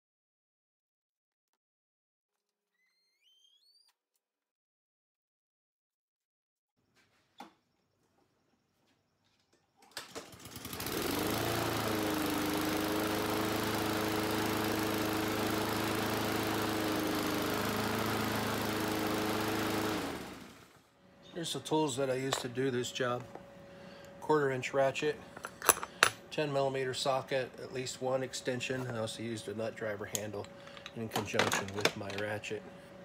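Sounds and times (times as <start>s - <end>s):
lawn mower engine running: 10.0s - 26.0s.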